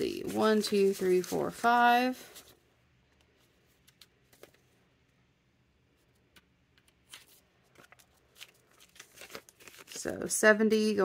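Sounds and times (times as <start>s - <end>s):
banknotes rustling: 0.0s - 2.6s, 6.1s - 10.4s.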